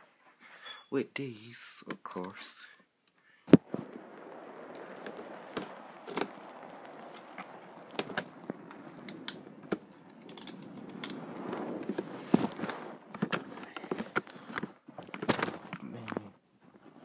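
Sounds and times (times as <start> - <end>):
sharp clicks: 3.1 - 16.2.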